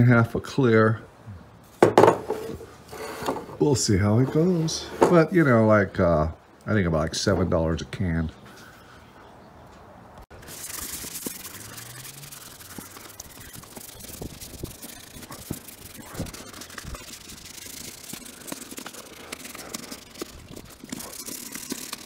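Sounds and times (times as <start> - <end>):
plastic sheet rustling: 10.3 - 22.0.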